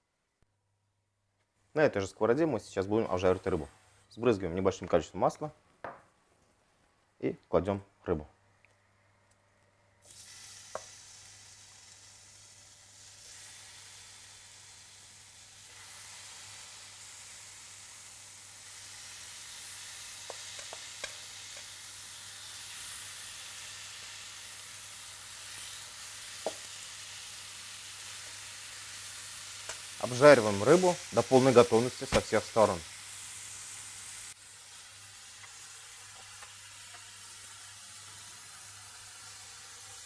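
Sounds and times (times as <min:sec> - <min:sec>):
fish sizzling in oil: 0:10.0 - 0:40.0.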